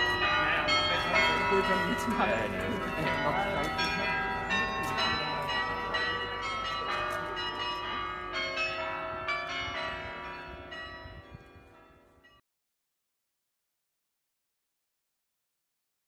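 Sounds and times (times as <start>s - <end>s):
carillon bells playing melody: 0.0s - 12.4s.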